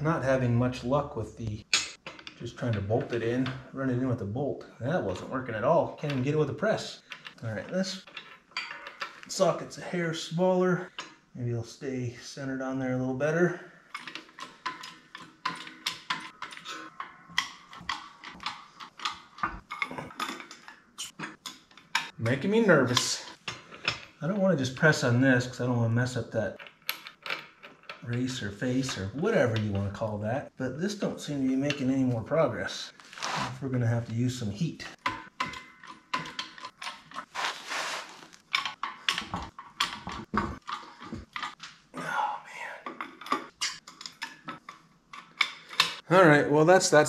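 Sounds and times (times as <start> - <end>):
hydraulic press metal clicks and knocks: 13.9 - 24.2, 35.0 - 37.2, 38.5 - 41.7.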